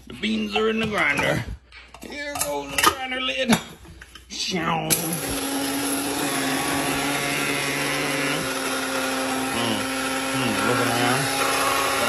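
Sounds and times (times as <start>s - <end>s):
coffee grinder running: 4.9s - 12.0s.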